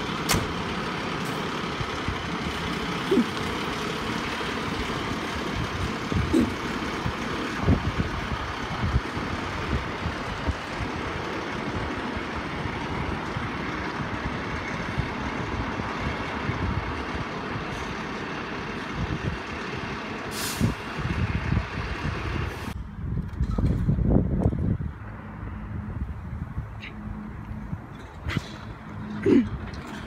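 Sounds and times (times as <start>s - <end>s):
diesel engine running: 0.0s - 30.0s
air brake hiss: 20.3s - 20.8s.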